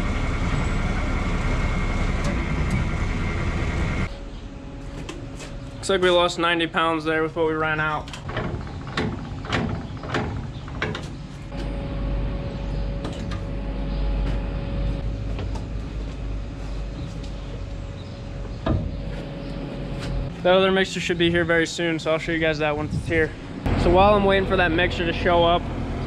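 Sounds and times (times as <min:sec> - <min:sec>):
low steady rumble: 0:00.0 - 0:26.0.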